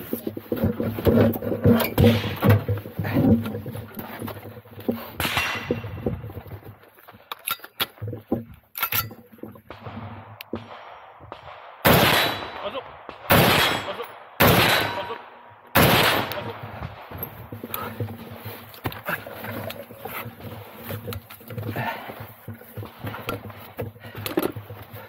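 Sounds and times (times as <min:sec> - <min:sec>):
loud gunshots with ringing tail: 0:09.7 - 0:17.2.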